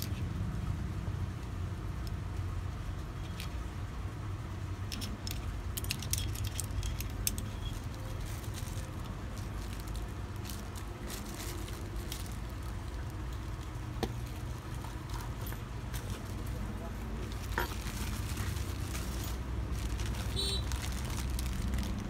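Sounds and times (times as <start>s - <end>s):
metal parts clicking in hands: 4.9s - 8.2s
plastic bag crinkling: 5.9s - 22.0s.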